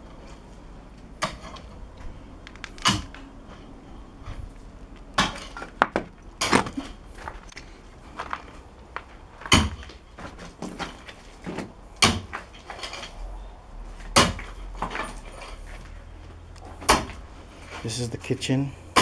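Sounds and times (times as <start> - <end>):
hand tool striking stony ground: 9.4 - 9.9, 12.0 - 13.0
scrapes and clatter: 12.3 - 13.2, 13.9 - 16.0.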